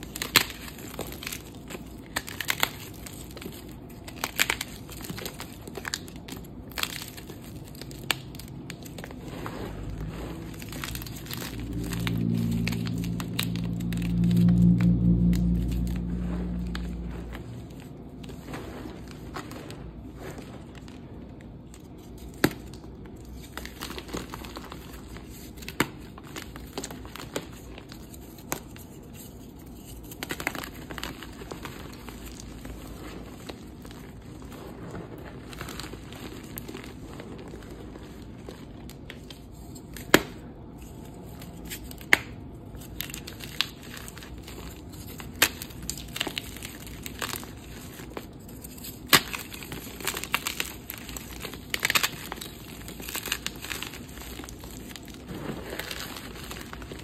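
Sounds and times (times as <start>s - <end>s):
chalk crumbling in hands: 0.0s - 21.0s, 21.7s - 57.0s
chalk pieces snapping: 41.6s - 55.1s.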